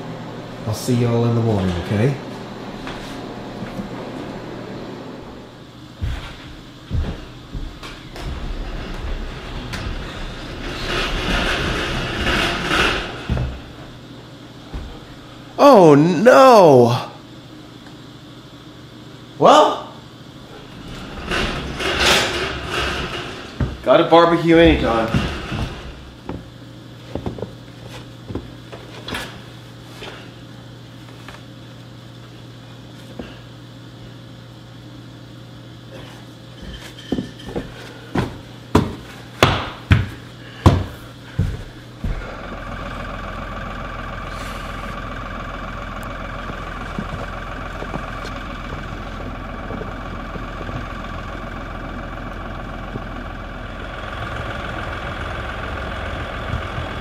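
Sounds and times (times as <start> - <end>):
sharp knocks: 38.2 - 40.1
tractor engine idling: 42.0 - 57.0.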